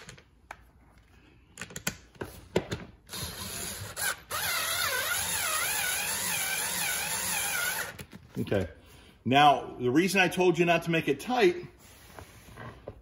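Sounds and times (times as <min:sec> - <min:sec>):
electric screwdriver motor whine: 0:03.1 - 0:08.0.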